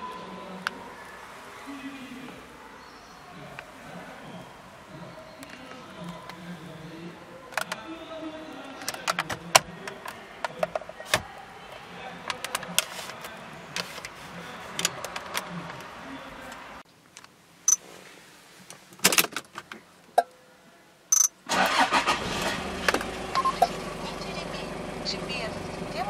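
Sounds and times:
plastic faceplate clicking and rattling: 0:08.7 - 0:11.2, 0:12.2 - 0:13.2
short high beeps: 0:21.1 - 0:21.3.

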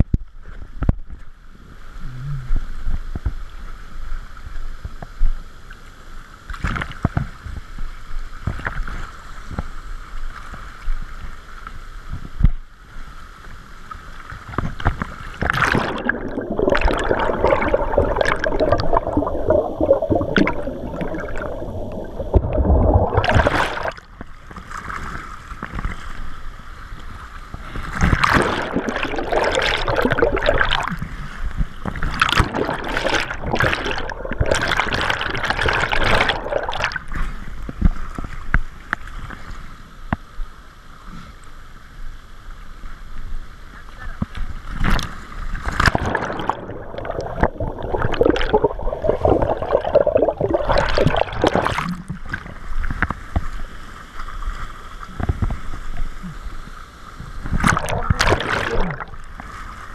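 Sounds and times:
churning whitewater: 0:15.4 - 0:24.1, 0:28.1 - 0:31.0, 0:31.9 - 0:37.1, 0:45.8 - 0:52.5, 0:57.5 - 0:59.9.

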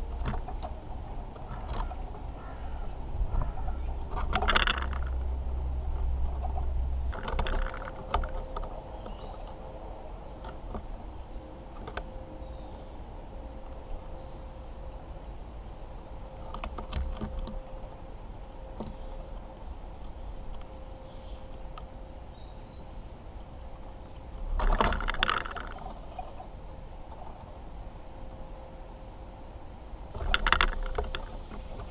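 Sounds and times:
sharp ticks on wood: 0:00.0 - 0:09.6, 0:16.4 - 0:17.8, 0:30.1 - 0:31.9
faint steady hum: 0:00.0 - 0:31.9
low rumble: 0:00.0 - 0:31.9.

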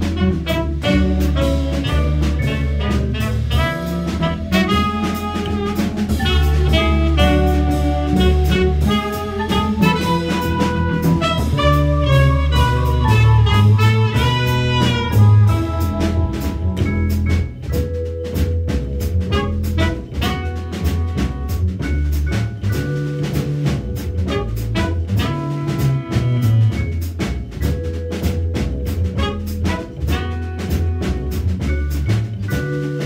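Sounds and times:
saxophone: 0:00.0 - 0:17.0, 0:19.2 - 0:21.9, 0:24.2 - 0:27.0, 0:29.2 - 0:31.8
trumpet: 0:00.0 - 0:17.0, 0:19.2 - 0:22.0, 0:24.2 - 0:27.2, 0:29.1 - 0:32.0
drum kit and cymbals: 0:00.0 - 0:33.0
mallet keyboard: 0:00.0 - 0:33.0
plucked upright bass: 0:00.0 - 0:33.0.

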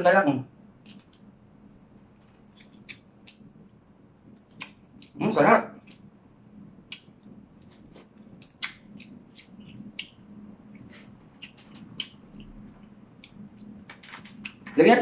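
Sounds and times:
faint steady hum: 0:00.0 - 0:15.0
chewing smacks: 0:06.9 - 0:10.2, 0:10.8 - 0:13.7.

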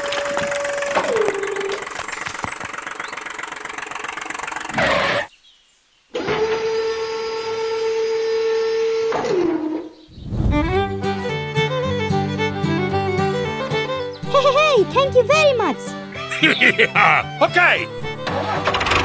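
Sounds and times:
gear rattle: 0:18.0 - 0:19.0.

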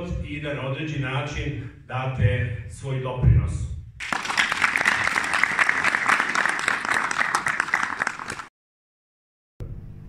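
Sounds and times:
audience applauding: 0:04.0 - 0:08.5.

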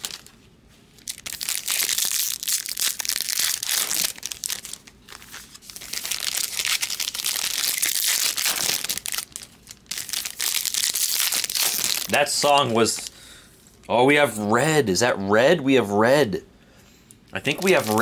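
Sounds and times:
card pack wrappers crinkling: 0:00.0 - 0:00.4, 0:01.0 - 0:13.2, 0:17.4 - 0:18.0
cards being handled: 0:17.5 - 0:18.0.

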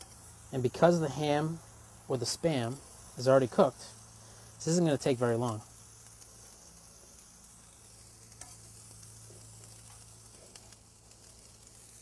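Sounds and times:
meat sizzling on grill: 0:00.0 - 0:12.0.

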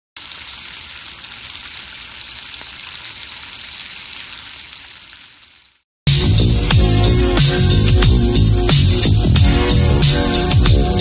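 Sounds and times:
meat sizzling in a pan: 0:00.2 - 0:05.8.

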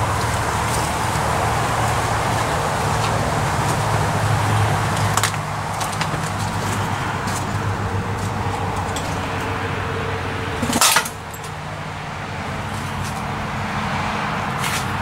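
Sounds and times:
engine running: 0:00.0 - 0:15.0
sharp metallic clank: 0:10.6 - 0:11.5.

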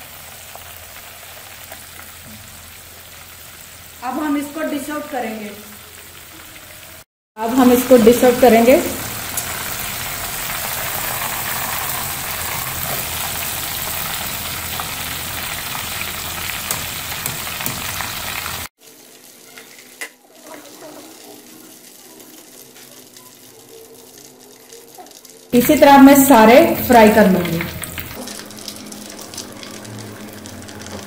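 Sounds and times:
deep-frying sizzle: 0:00.0 - 0:31.0
quiet oil crackle: 0:27.8 - 0:31.0.

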